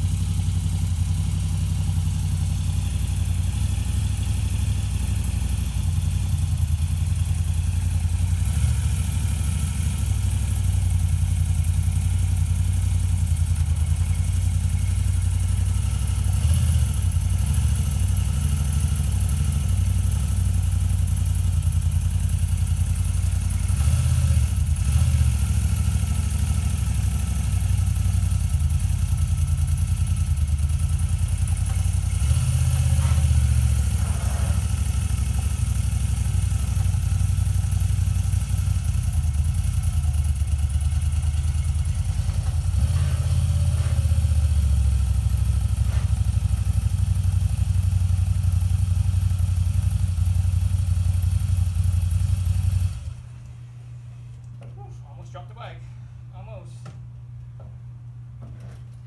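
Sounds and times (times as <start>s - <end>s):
motorcycle engine idling: 0.0s - 54.1s.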